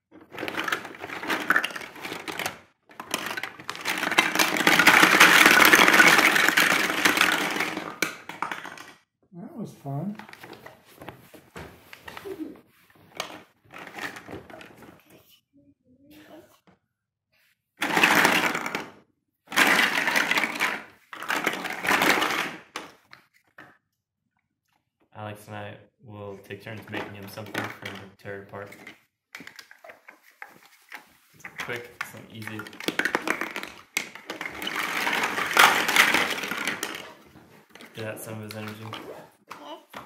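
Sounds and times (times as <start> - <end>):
plastic blocks clattering on wood: 0.0 - 9.0, 13.1 - 15.0, 17.8 - 23.8, 26.7 - 40.0.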